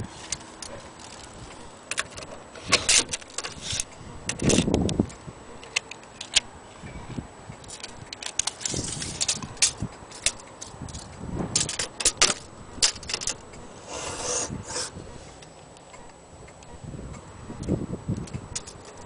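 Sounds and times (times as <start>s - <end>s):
metal tape measure clicking: 0.2s - 6.5s, 7.6s - 15.5s, 18.2s - 19.0s
tape blade rasp: 2.6s - 4.7s, 12.9s - 15.1s.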